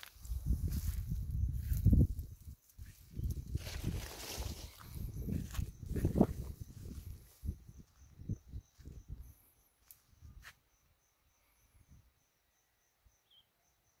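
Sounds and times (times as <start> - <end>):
footsteps on dirt path: 0.0 - 8.1
insect chirping: 0.0 - 14.0.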